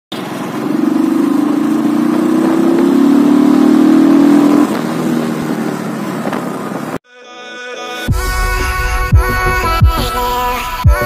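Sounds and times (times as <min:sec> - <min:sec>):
motorcycle engine running: 0:00.1 - 0:07.0.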